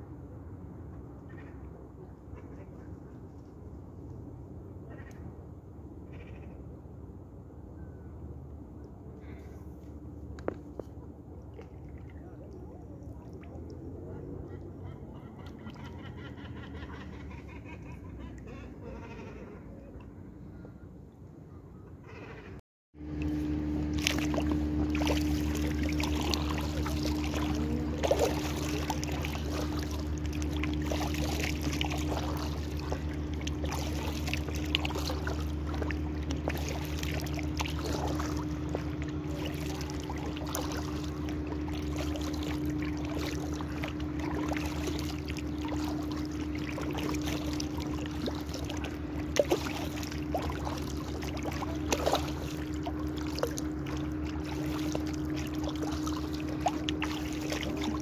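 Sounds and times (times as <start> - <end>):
steady low hum: 0.0 - 58.0
water lapping around kayak: 8.6 - 58.0
paddle splashes: 10.6 - 16.5, 23.0 - 58.0.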